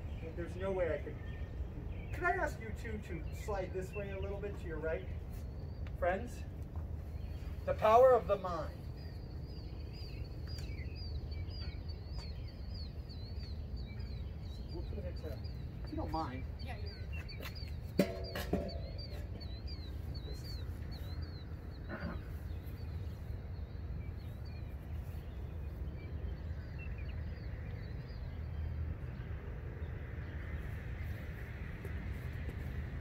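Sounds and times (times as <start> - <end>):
bird chirping: 0.0 - 33.0
passing traffic rushing: 12.5 - 33.0.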